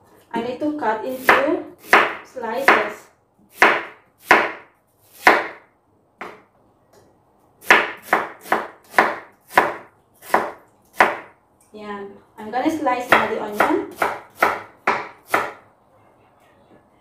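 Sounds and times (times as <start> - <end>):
knife chopping on cutting board: 1.2 - 2.9, 3.5 - 5.6, 7.6 - 11.3, 13.1 - 15.6.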